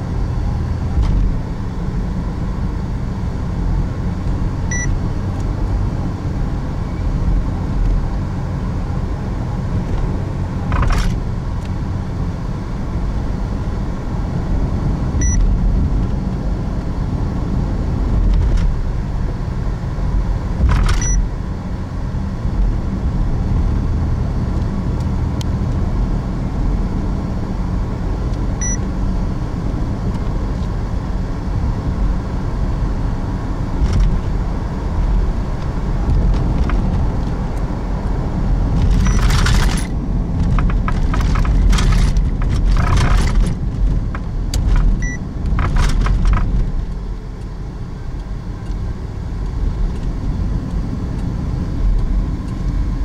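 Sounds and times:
car road and engine rumble: 0.0s - 53.0s
brief electronic beep: 4.7s - 4.9s, 15.2s - 15.4s, 21.0s - 21.2s, 28.6s - 28.8s, 45.0s - 45.2s.

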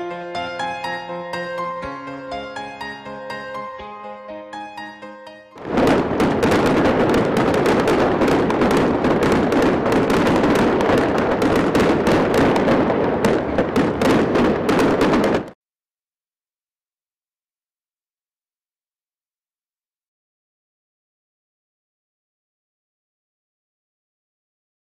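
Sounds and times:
dense crackling pops and bangs: 5.6s - 15.6s.

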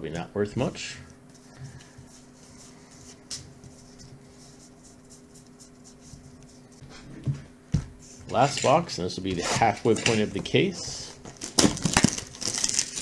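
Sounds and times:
paper cards being shuffled: 9.8s - 13.0s.

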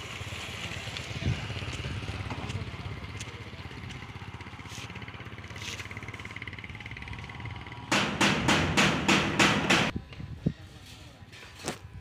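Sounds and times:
engine idling: 1.9s - 9.9s
loud sharp bangs: 7.9s - 9.9s.

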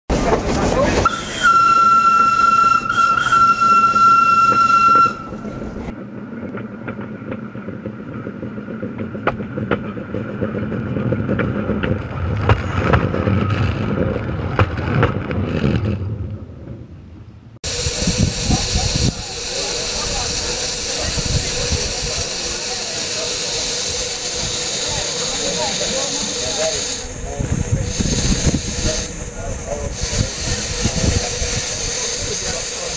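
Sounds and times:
train rumbling over rails: 0.1s - 32.9s
steam locomotive whistle: 1.0s - 5.6s, 17.7s - 32.9s.

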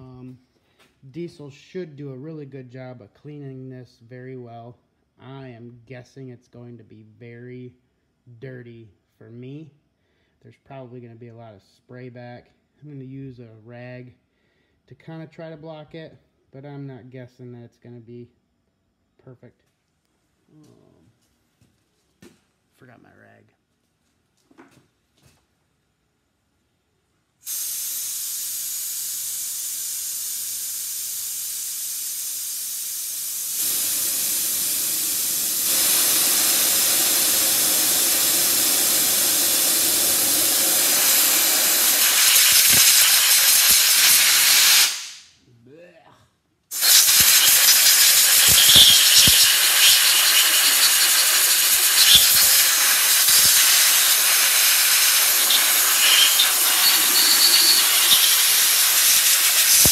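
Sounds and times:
spray gun hissing: 27.4s - 45.3s, 46.7s - 59.9s.

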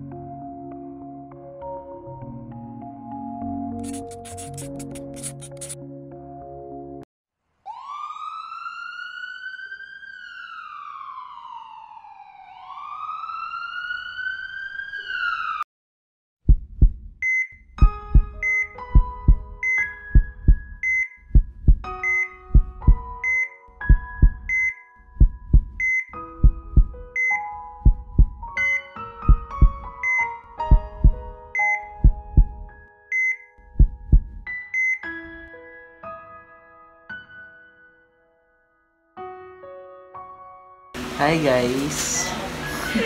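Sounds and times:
siren wailing: 7.7s - 15.6s
heartbeat thumping: 16.5s - 23.2s, 23.8s - 27.0s, 27.8s - 28.4s, 29.2s - 29.9s, 30.6s - 31.4s, 32.0s - 32.7s, 33.7s - 34.5s.

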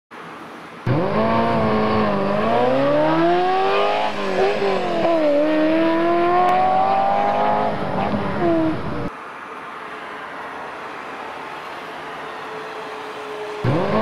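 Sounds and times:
sports car engine revving: 0.9s - 9.1s, 13.6s - 14.0s.

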